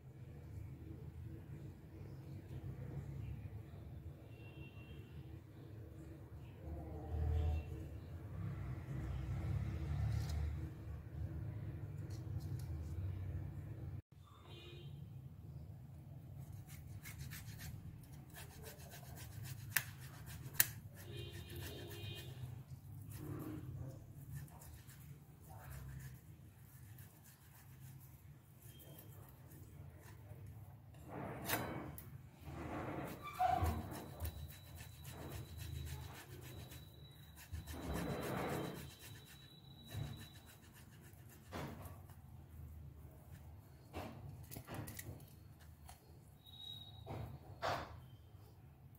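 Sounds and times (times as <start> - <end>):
potato grating rasps: 16.4 - 30.4, 32.9 - 42.1.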